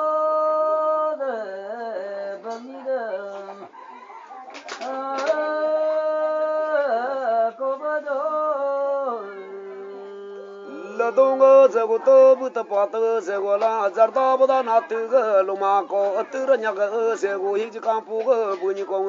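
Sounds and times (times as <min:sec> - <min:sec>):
men chanting: 0:04.8 - 0:19.0.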